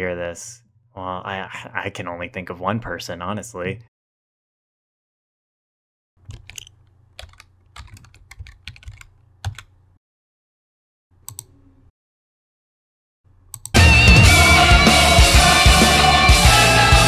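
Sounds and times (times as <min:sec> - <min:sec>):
computer keyboard typing: 0:06.2 - 0:09.7.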